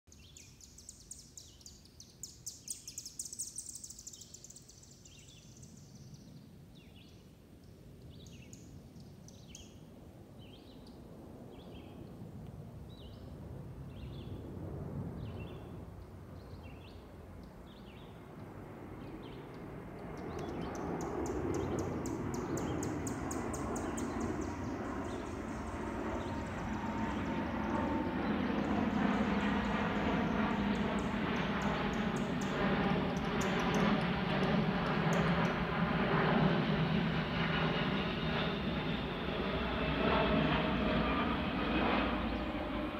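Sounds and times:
bird chirping: 0.1s - 7.2s, 20.2s - 29.7s
jet engine whine: 3.5s - 42.9s
jet engines rumbling: 11.0s - 42.9s.

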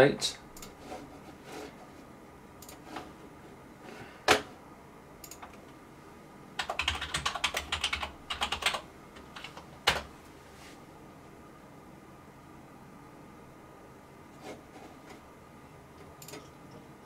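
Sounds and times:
computer keyboard typing: 5.2s - 5.6s, 6.6s - 10.1s.

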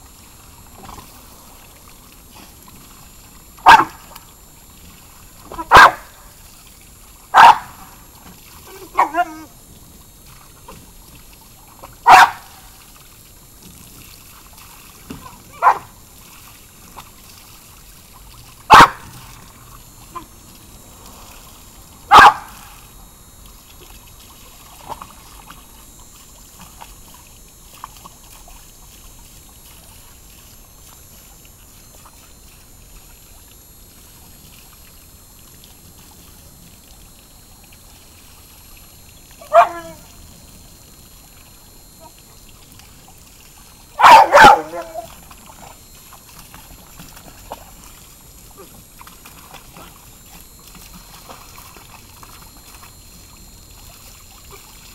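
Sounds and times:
garden hose spraying into pool: 0.0s - 54.9s
dog barking: 3.6s - 4.0s, 5.6s - 6.1s, 7.3s - 7.8s, 8.7s - 9.5s, 12.1s - 12.6s, 15.2s - 15.9s, 18.7s - 19.1s, 22.1s - 22.6s, 39.4s - 40.0s, 44.0s - 45.1s.

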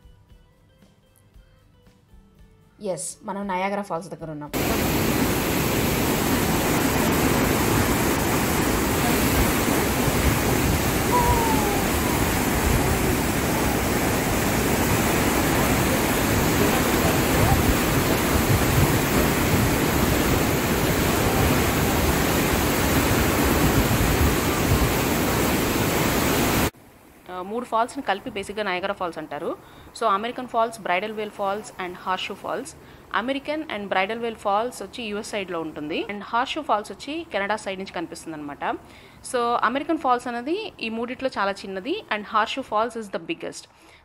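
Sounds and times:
waterfall roaring: 4.6s - 26.7s.

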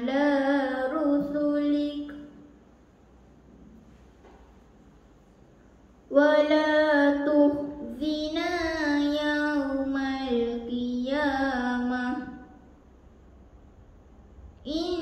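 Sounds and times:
girl reciting melodically: 0.0s - 2.6s, 6.0s - 12.9s, 14.5s - 15.0s.

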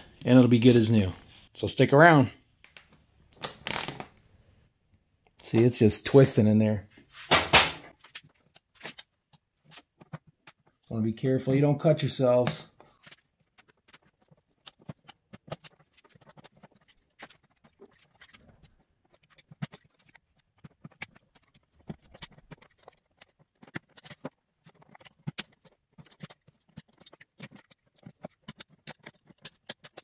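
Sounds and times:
knife scraping plastic: 7.9s - 11.0s, 12.4s - 30.0s.

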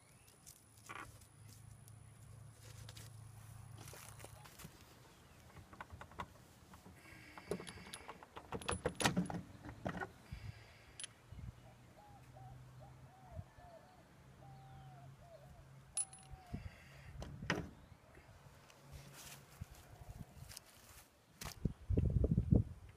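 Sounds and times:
metallic clinks and rattles: 5.6s - 9.6s, 16.0s - 16.4s.

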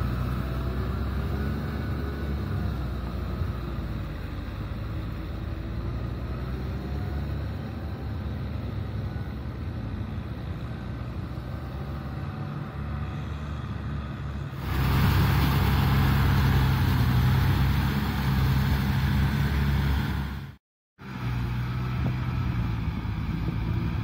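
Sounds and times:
tractor diesel engine running: 0.0s - 24.0s
rushing hiss: 14.6s - 20.4s.

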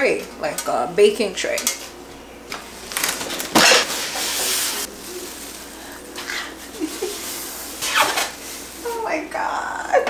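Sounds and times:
plastic and styrofoam rustling: 2.7s - 9.5s.

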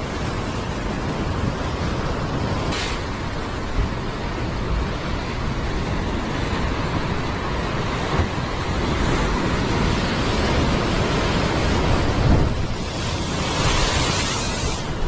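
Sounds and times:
surf breaking on rocks: 4.2s - 15.0s
foam hissing across rocks: 12.8s - 15.0s.

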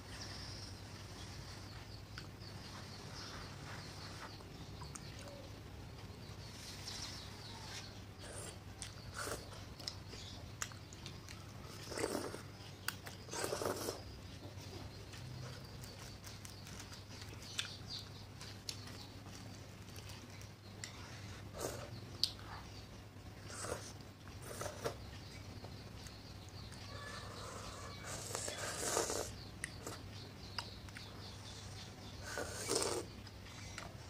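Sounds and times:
chewing: 8.2s - 14.1s, 15.1s - 22.7s
child slurping noodles: 28.1s - 29.3s, 32.2s - 33.1s.

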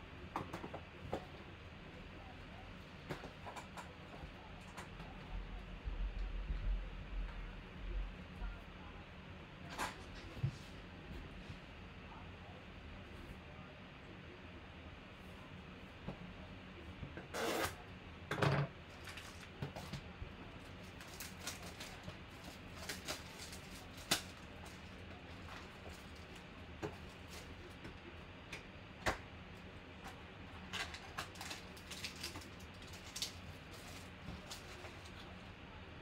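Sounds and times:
plastic crinkling crackles: 18.9s - 27.8s, 30.8s - 35.3s
plastic shrink-wrap ripping: 20.8s - 24.8s, 30.8s - 35.2s.

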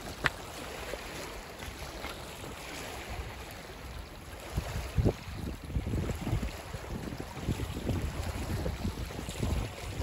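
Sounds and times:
waves lapping on shingle: 0.0s - 10.0s
wind: 0.0s - 10.0s
wind buffeting microphone: 0.0s - 10.0s.

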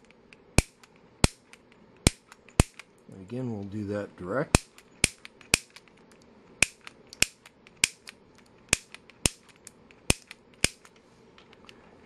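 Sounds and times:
piezo ignitor snapping: 4.5s - 6.0s, 6.6s - 10.9s.

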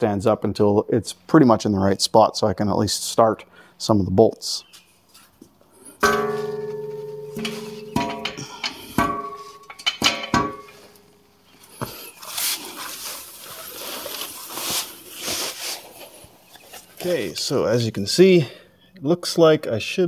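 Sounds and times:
steel clanking on jack stands: 6.0s - 11.1s
soft rustle: 10.9s - 17.4s.

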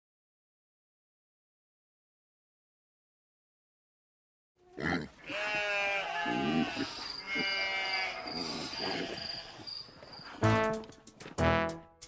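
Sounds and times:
sheep bleating: 4.6s - 9.8s.

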